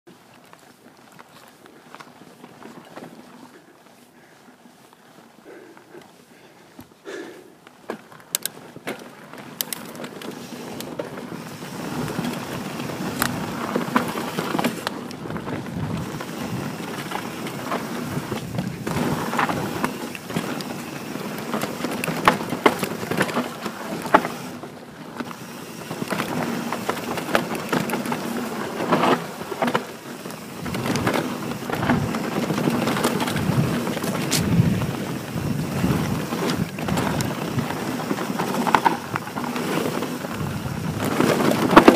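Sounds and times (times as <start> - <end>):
bike tyres rumbling over dirt: 0.1 - 5.8, 7.8 - 41.9
bike rattling clicks and knocks: 7.7 - 41.9.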